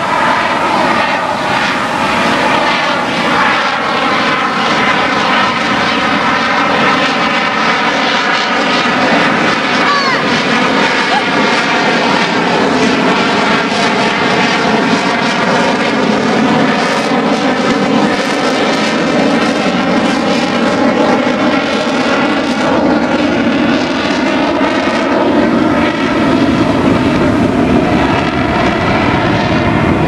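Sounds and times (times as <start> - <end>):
airplane engine drone: 0.0 - 30.0.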